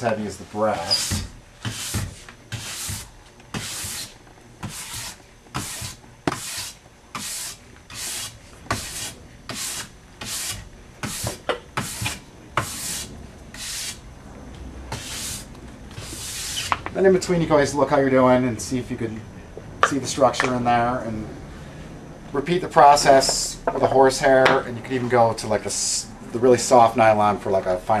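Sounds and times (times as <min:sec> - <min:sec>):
nylon brush scratching ski base: 0:00.6 - 0:14.0, 0:14.9 - 0:16.7.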